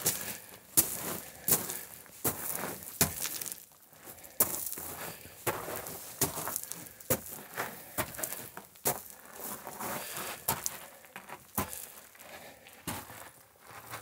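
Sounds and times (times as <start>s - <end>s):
footsteps crunching on rock rubble: 0.0s - 14.0s.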